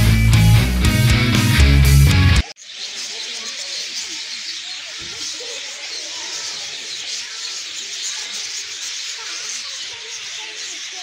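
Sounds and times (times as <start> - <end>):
budgerigars chattering: 2.5 - 11.0.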